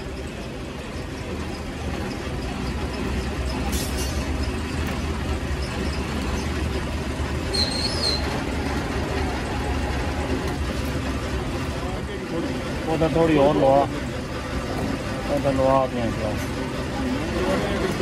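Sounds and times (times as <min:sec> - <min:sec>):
hydraulic press humming and rumbling: 0:00.0 - 0:18.0
high squeak: 0:07.5 - 0:08.4.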